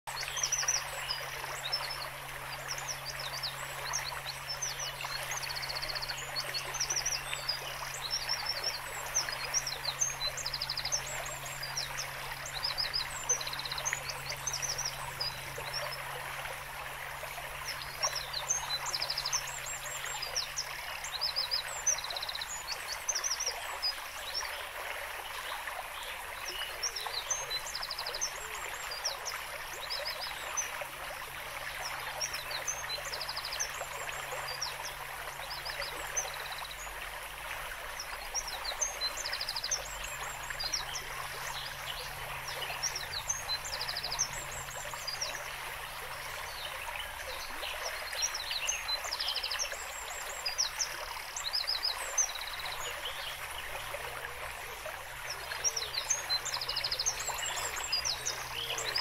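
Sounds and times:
flowing water: 0:00.1 - 0:59.0
small birds chirping: 0:37.8 - 0:59.0.

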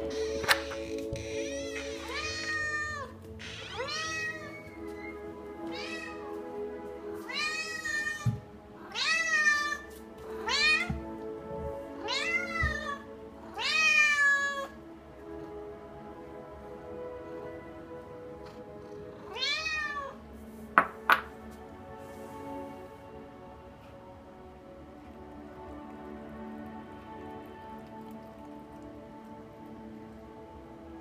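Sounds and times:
cat meowing: 0:00.1 - 0:06.2, 0:07.2 - 0:11.0, 0:12.0 - 0:14.8, 0:19.3 - 0:20.2.

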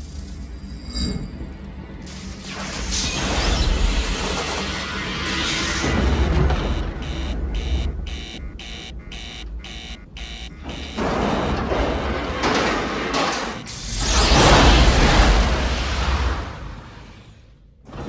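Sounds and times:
warning alarm beeping: 0:05.2 - 0:13.8.

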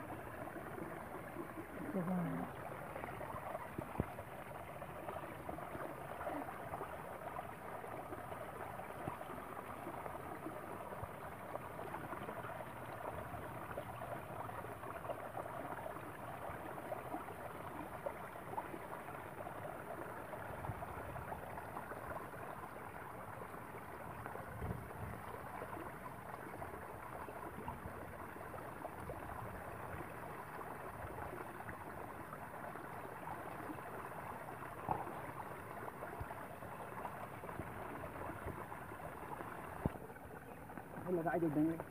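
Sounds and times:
running water trickling: 0:00.0 - 0:41.9.

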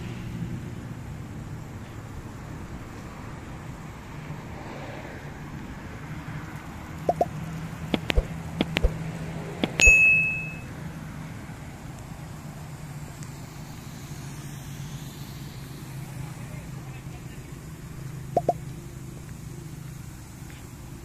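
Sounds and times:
low hum: 0:07.0 - 0:11.0, 0:11.6 - 0:20.4
sharp clicks and taps: 0:07.1 - 0:07.3, 0:07.9 - 0:09.0, 0:09.6 - 0:10.0, 0:18.4 - 0:18.6
metallic ding: 0:09.7 - 0:10.7.

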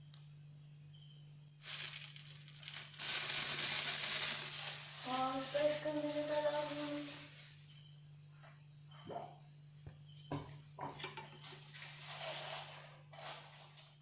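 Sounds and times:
high-pitched insect chirring: 0:00.8 - 0:08.2.

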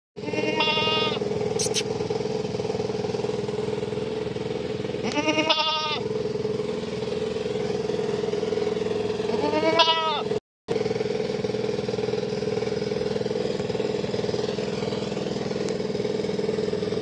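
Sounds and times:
goat bleating: 0:00.2 - 0:01.8, 0:05.0 - 0:06.0, 0:09.3 - 0:10.3
steady engine-like drone: 0:00.2 - 0:17.0.

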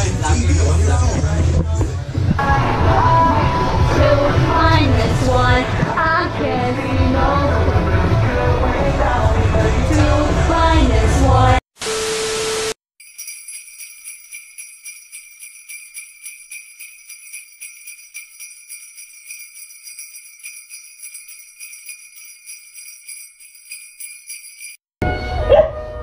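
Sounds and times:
jingle bells shaking: 0:13.0 - 0:24.9.

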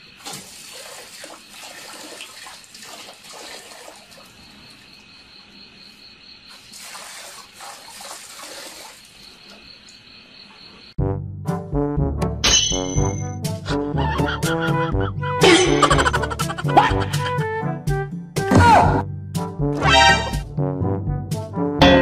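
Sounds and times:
water splashing into metal bucket: 0:00.0 - 0:04.8, 0:06.5 - 0:09.6.

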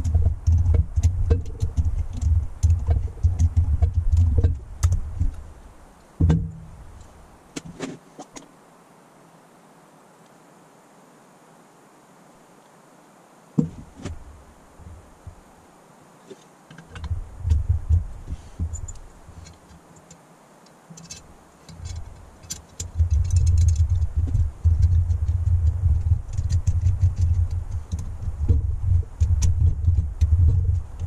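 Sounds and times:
low rumble: 0:17.0 - 0:19.0, 0:22.9 - 0:31.0
small metal clicks and clinks: 0:20.9 - 0:24.1.

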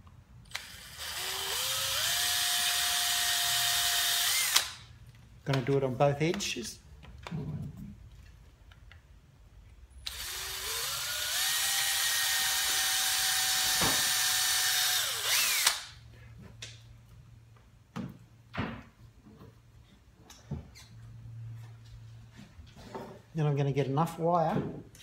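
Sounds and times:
cordless drill boring wood: 0:00.5 - 0:04.8, 0:10.1 - 0:16.0.

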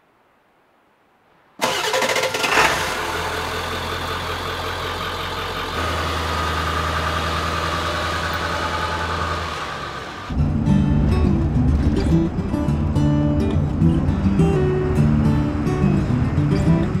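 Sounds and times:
diesel engine starting and idling: 0:01.6 - 0:11.7.

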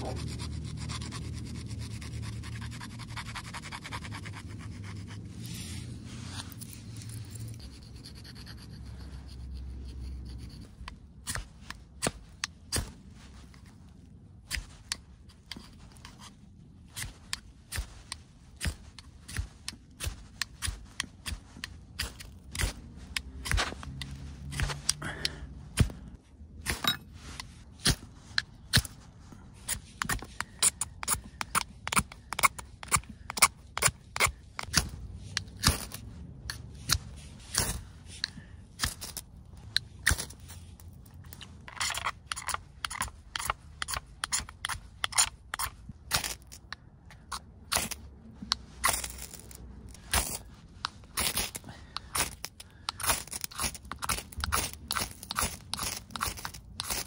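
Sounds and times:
knife blade scraping: 0:26.6 - 0:29.0, 0:29.6 - 0:57.0.

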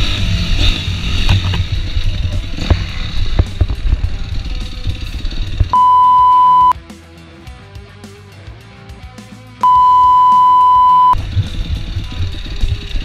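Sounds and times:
dirt bike engine: 0:00.0 - 0:06.7, 0:09.6 - 0:13.0
censor bleep: 0:05.7 - 0:06.8, 0:09.6 - 0:11.2.

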